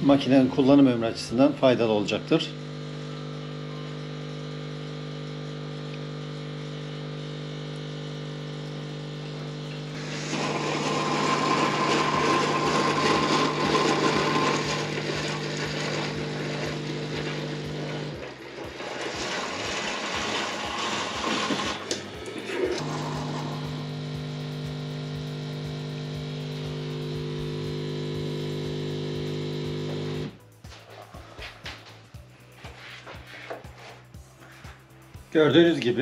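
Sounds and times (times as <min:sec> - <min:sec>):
coffee machine hum: 0:00.0 - 0:35.6
pump pulsing: 0:02.6 - 0:30.4
hiss of hot water and steam: 0:10.0 - 0:11.2.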